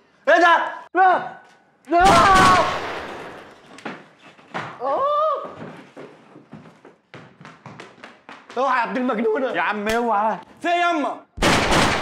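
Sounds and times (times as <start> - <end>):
person yelling: 0.3 - 2.8
handgun shot: 2.0 - 3.5, 11.4 - 12.0.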